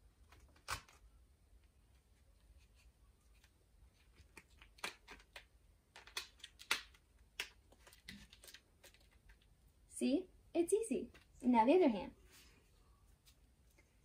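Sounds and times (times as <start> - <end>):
adhesive tape ripping and crinkling: 0.3 - 1.0, 4.4 - 9.0.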